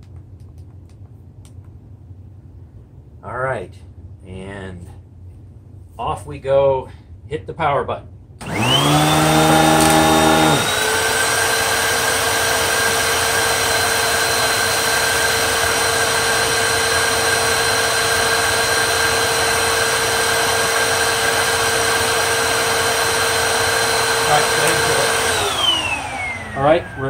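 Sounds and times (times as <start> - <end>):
vacuum cleaner motor whine: 8.4 - 27.0.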